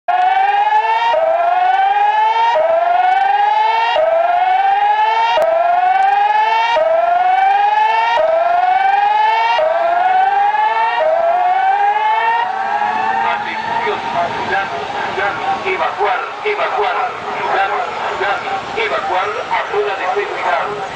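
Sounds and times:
rising whoop siren: 0.1s - 18.4s.

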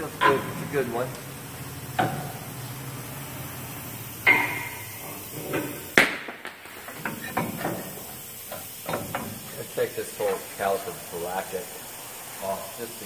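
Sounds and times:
metal clanks and knocks: 0.0s - 0.8s, 4.2s - 9.5s.

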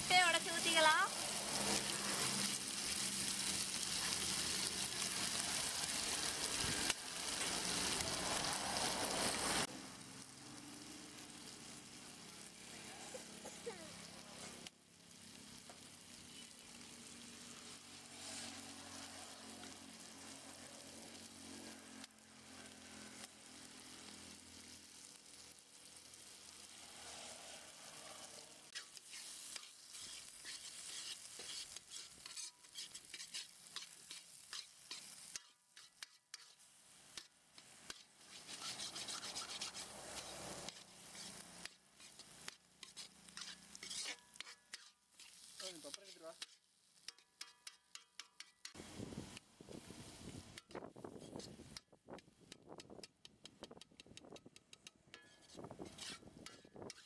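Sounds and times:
food sizzling in a pan: 0.0s - 53.8s, 54.8s - 57.0s
metal ladle scraping a pan: 27.0s - 48.8s, 54.4s - 57.0s.

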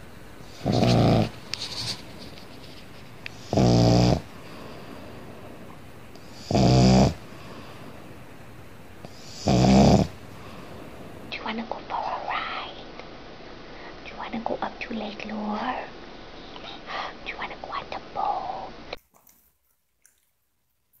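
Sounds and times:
dog snoring: 0.4s - 1.4s, 3.3s - 5.6s, 6.2s - 7.9s, 9.0s - 10.7s.

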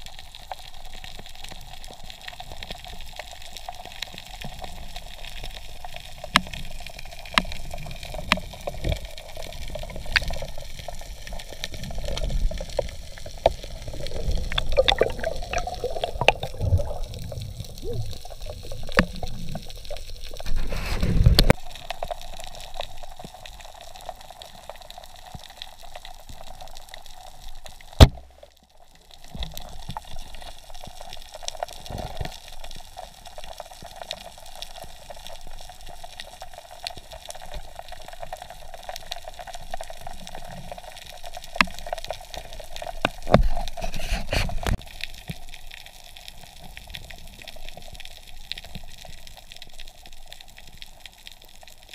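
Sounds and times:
rushes of water: 11.1s - 21.6s
underwater watery hiss: 11.2s - 21.6s, 42.4s - 44.8s
sharp loud click: 28.0s - 28.3s.

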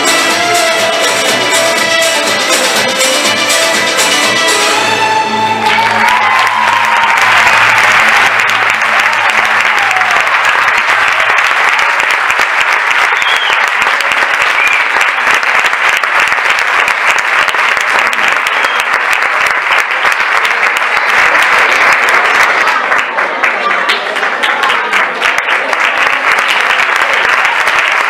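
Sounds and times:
dance music: 0.0s - 10.2s
audience applauding: 0.0s - 28.0s.

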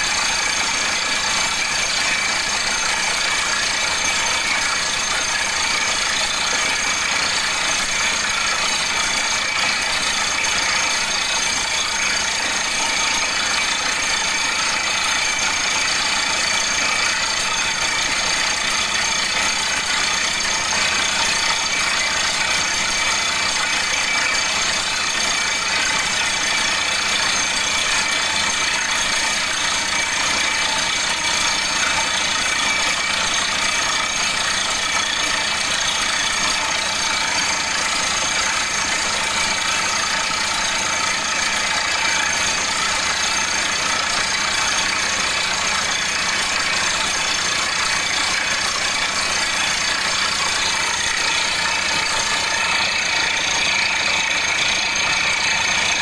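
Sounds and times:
drilling rig droning: 48.5s - 56.0s.

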